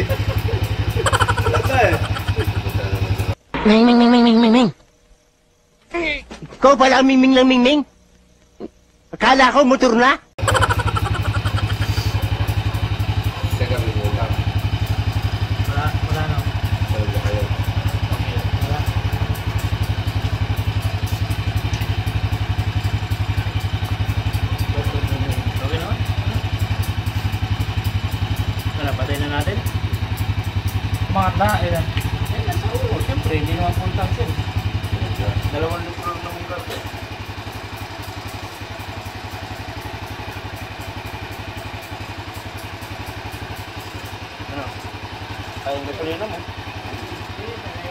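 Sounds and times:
motorcycle engine idling: 0:00.0 - 0:03.4, 0:10.4 - 0:47.9.

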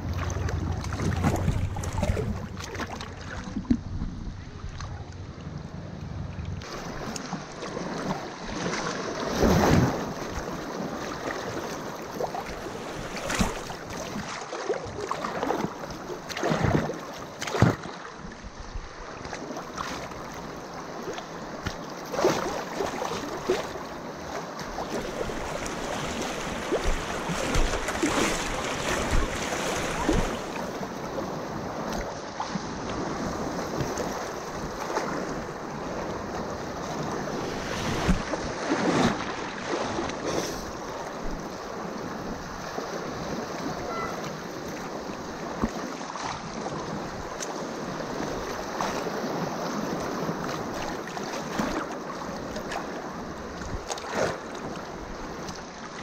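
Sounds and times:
water splashing: 0:00.0 - 0:03.9, 0:06.6 - 0:18.2, 0:21.0 - 0:36.0.

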